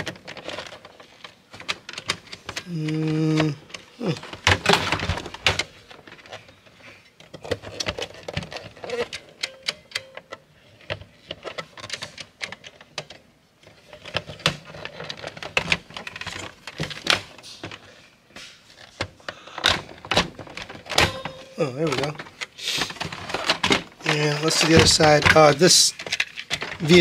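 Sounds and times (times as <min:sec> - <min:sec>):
plastic toy parts clicking: 0:00.0 - 0:06.4, 0:07.2 - 0:13.2, 0:21.8 - 0:27.0.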